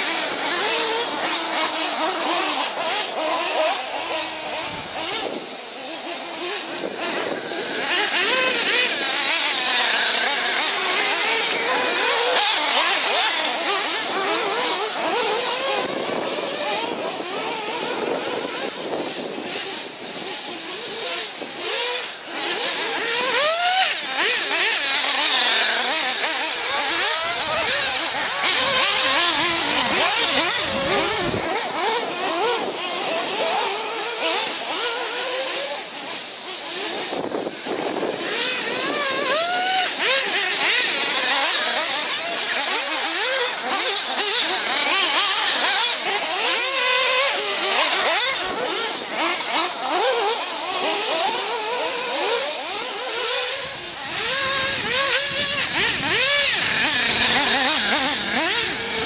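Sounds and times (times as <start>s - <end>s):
electric rc car motors whining: 0.0s - 59.0s
wind buffeting microphone: 25.2s - 33.6s, 53.6s - 59.0s.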